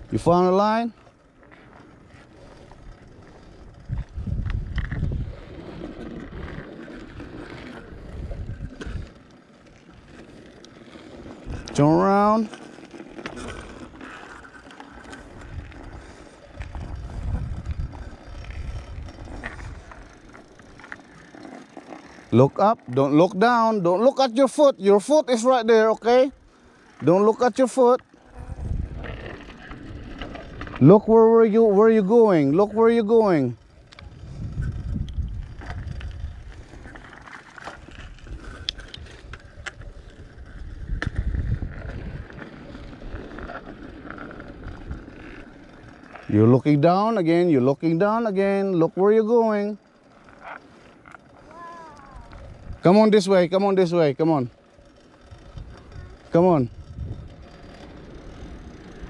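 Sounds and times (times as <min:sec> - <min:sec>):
bicycle tyres rumbling on pavement: 0:00.0 - 0:59.0
wind on microphone: 0:02.8 - 0:09.1, 0:15.3 - 0:20.1, 0:28.3 - 0:30.8, 0:33.8 - 0:37.1, 0:38.0 - 0:42.4, 0:52.1 - 0:52.8, 0:55.3 - 0:57.5.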